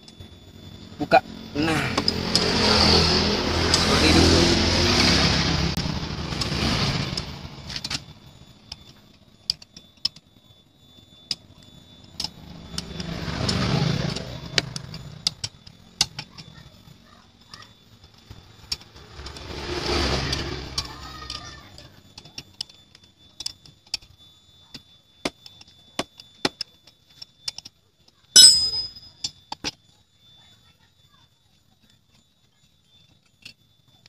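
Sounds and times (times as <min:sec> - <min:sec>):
vehicle passing: 0:01.3 - 0:07.6, 0:19.0 - 0:21.0
wrenches clinking on metal: 0:28.3 - 0:29.3
ringing metal clang: 0:28.3 - 0:29.4.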